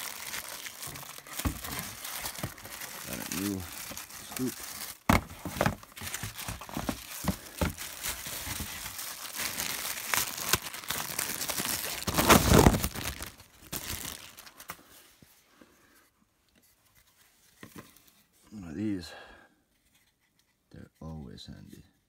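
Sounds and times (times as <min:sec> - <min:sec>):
packaging crinkling and rustling: 0:00.0 - 0:14.9.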